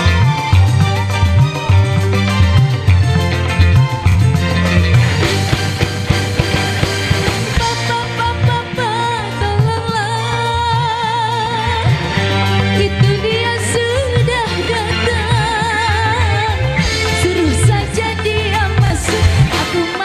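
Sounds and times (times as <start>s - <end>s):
drums and bass: 0.0s - 20.0s
guitar: 0.0s - 20.0s
keyboard: 0.0s - 20.0s
woman singing: 7.6s - 20.0s.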